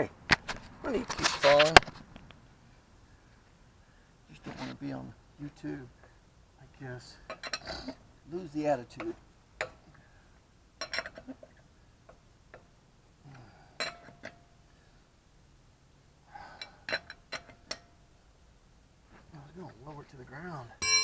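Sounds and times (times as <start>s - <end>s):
lug wrench clinking on lug nuts: 7.3s - 7.7s, 10.8s - 11.3s, 13.8s - 14.5s, 16.6s - 18.0s, 20.8s - 21.0s.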